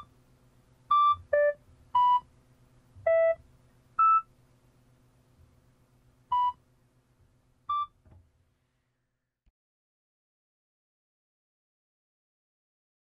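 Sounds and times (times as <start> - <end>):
faint steady hum: 0.0 - 9.4
short electronic beeps: 3.1 - 3.4.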